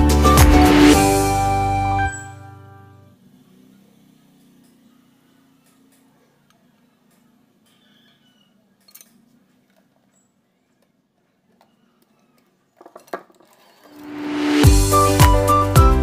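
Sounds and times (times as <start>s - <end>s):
music: 0.0s - 3.1s, 14.0s - 16.0s.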